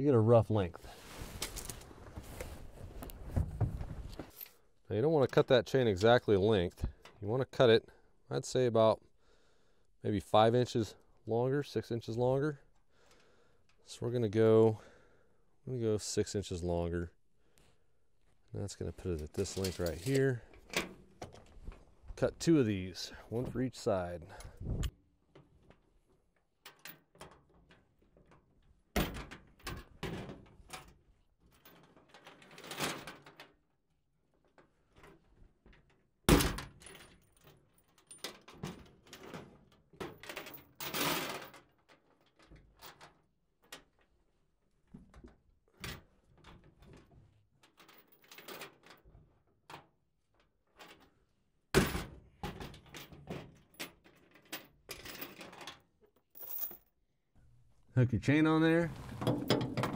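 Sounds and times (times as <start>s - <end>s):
chain rattling and clinking: 52.8s - 56.9s.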